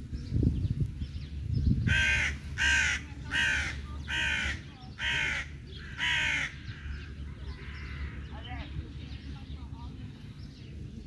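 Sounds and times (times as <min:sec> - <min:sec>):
crow cawing: 0:01.9 - 0:08.2.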